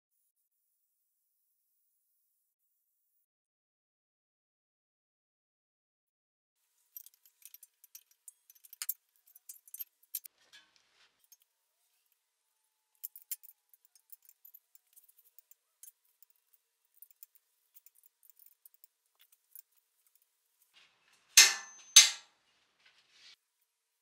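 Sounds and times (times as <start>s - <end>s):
hand tools clinking: 6.9s - 10.3s, 13.0s - 23.0s.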